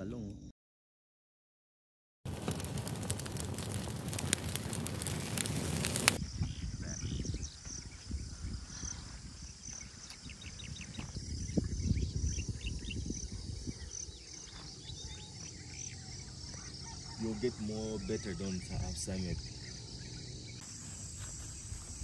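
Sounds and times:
campfire crackling and popping: 2.3 - 6.2
insects chirping: 2.3 - 22.0.

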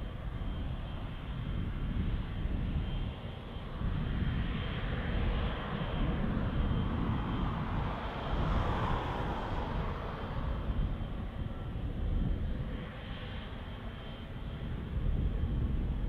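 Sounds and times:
jet engines running: 0.0 - 16.0.

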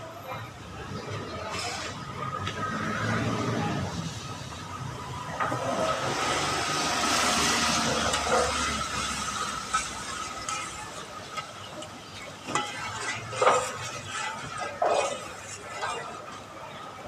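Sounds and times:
hot oil sizzling in a wok: 5.9 - 16.1
metal skimmer clinking on wok: 8.1 - 16.2.

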